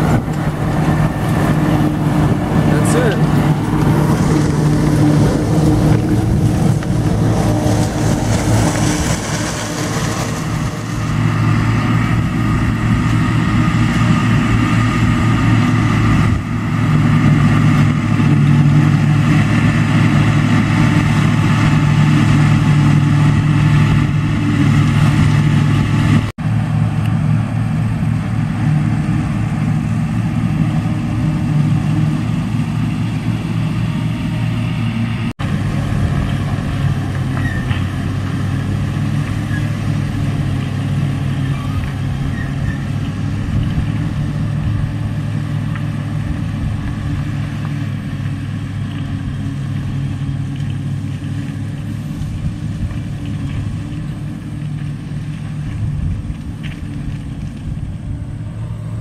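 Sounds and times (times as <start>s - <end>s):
forage chopper cutting corn: 0.0s - 59.0s
tractor engine running under load: 0.0s - 59.0s.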